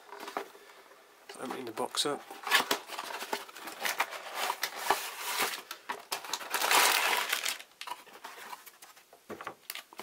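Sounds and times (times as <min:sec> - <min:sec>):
plastic bags crinkling: 0:02.3 - 0:08.8.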